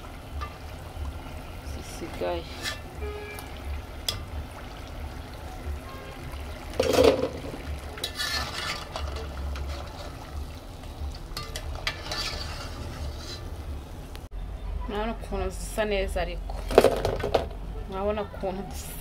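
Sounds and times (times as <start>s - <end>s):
fritters sizzling in deep oil: 0.0s - 14.3s
metal skimmer scraping and knocking: 2.1s - 3.0s, 6.7s - 10.4s, 11.1s - 13.7s, 16.4s - 17.6s.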